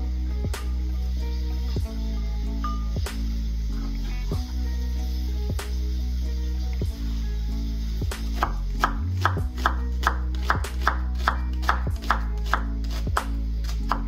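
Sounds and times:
background music with bass: 0:00.0 - 0:14.0
knife slicing onion on cutting board: 0:08.2 - 0:14.0.

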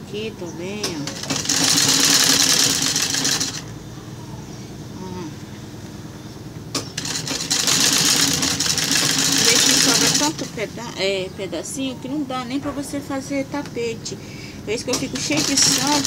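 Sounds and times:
sewing machine stitching: 0:00.9 - 0:03.7, 0:06.8 - 0:10.7, 0:14.9 - 0:16.0.

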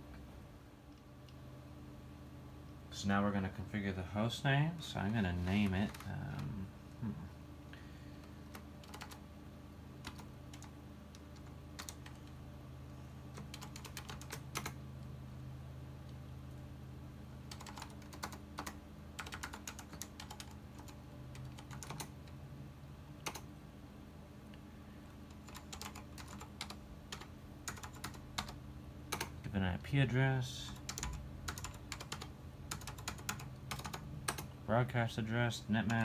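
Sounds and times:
low hum: 0:00.0 - 0:08.8
computer keyboard typing: 0:05.6 - 0:06.5, 0:08.2 - 0:09.2, 0:10.0 - 0:12.4, 0:13.3 - 0:14.8, 0:17.5 - 0:22.3, 0:23.2 - 0:23.5, 0:25.3 - 0:29.4, 0:30.7 - 0:34.5, 0:35.8 - 0:36.0.

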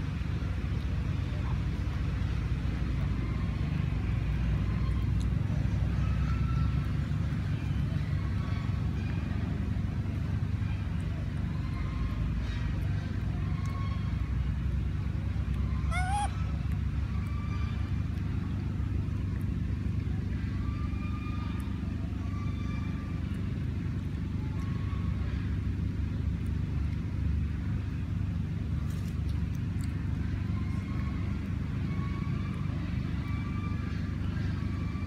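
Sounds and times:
low outdoor rumble: 0:00.0 - 0:35.0
short high-pitched calls: 0:15.8 - 0:16.4.

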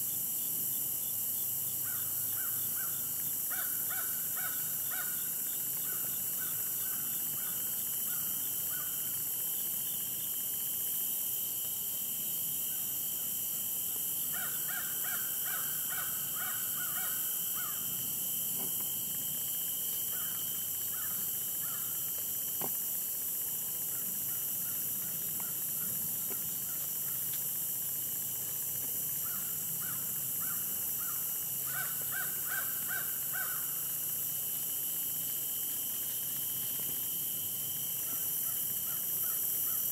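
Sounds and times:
high drone of insects: 0:00.0 - 0:39.9
crows cawing: 0:03.5 - 0:05.2, 0:14.3 - 0:17.8, 0:20.1 - 0:21.9, 0:29.2 - 0:33.7.

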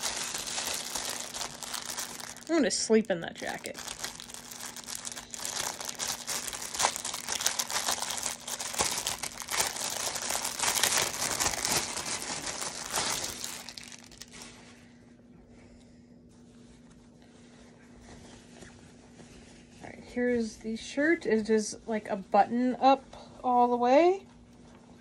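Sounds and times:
plastic bag crinkling: 0:00.0 - 0:14.7.

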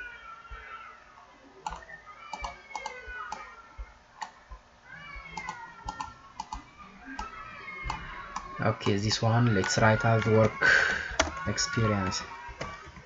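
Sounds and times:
keyboard and mouse clicking: 0:01.6 - 0:03.5, 0:05.3 - 0:06.6.

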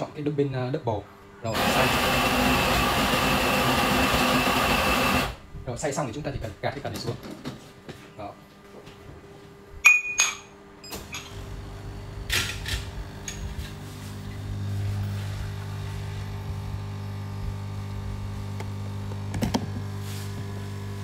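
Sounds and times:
espresso machine pump humming: 0:01.5 - 0:05.4, 0:11.4 - 0:21.0
ceramic cups clinking: 0:09.9 - 0:10.5.

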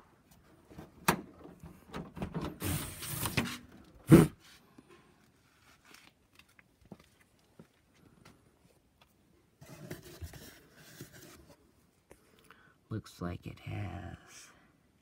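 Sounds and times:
rustling: 0:02.6 - 0:12.0.

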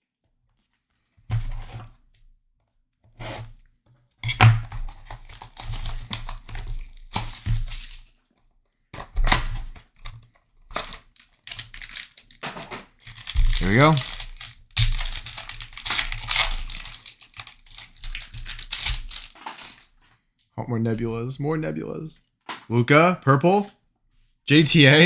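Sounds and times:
cardboard box tearing: 0:13.2 - 0:19.8.

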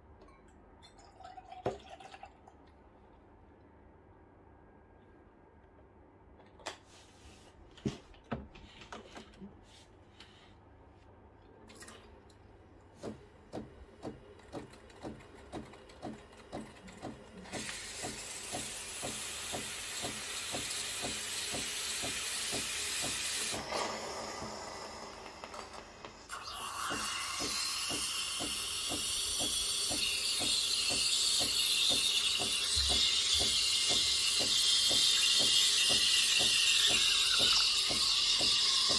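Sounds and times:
pump pulsing: 0:13.0 - 0:25.7, 0:26.3 - 0:38.9
steam wand hissing: 0:17.5 - 0:38.9.

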